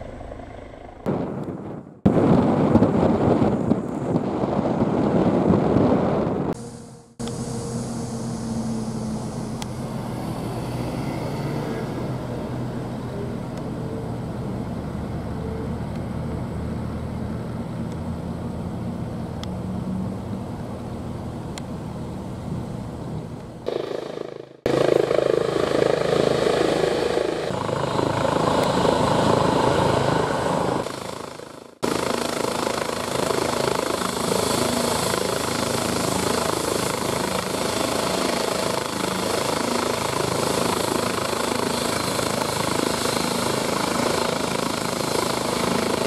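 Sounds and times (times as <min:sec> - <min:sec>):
helicopter turbine and rotor hum: 0:00.0 - 0:46.0.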